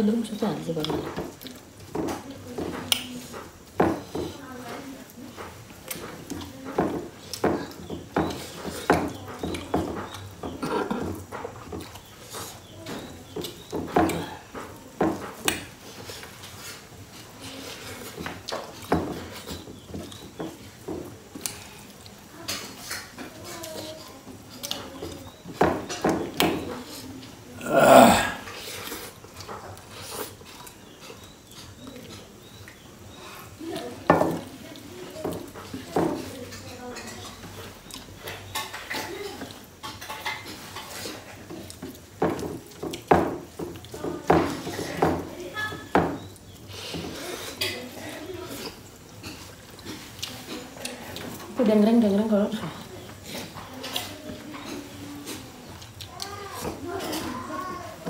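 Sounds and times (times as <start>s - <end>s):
chewing: 0.8s - 45.0s, 46.3s - 51.6s, 52.5s - 58.0s
chewing and lip-smacking: 11.4s - 12.6s, 28.6s - 32.8s, 37.6s - 39.6s, 48.5s - 51.5s.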